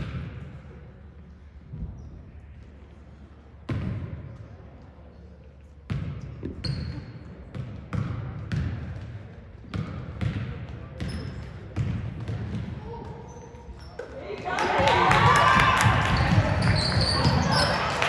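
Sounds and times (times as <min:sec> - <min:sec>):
basketball bouncing on gym floor: 0:05.9 - 0:13.2
sneaker squeak: 0:06.4 - 0:07.3, 0:11.0 - 0:11.6, 0:12.9 - 0:14.2, 0:16.1 - 0:18.0.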